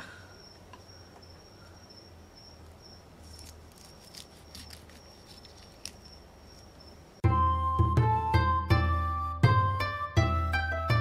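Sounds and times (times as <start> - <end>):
crickets chirping: 0.0 - 7.2.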